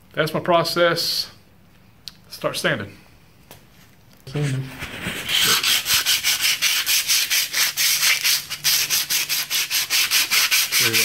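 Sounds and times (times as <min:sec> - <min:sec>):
sandpaper rubbing on metal: 0:04.8 - 0:11.0.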